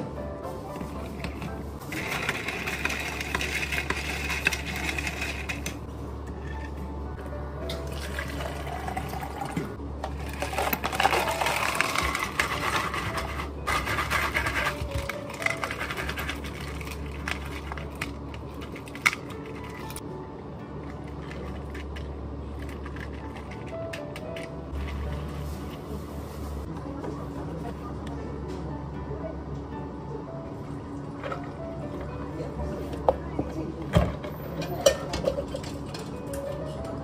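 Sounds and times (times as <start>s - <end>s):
ice clinking: 7.8s - 19.9s
water pouring into cup: 7.9s - 9.7s.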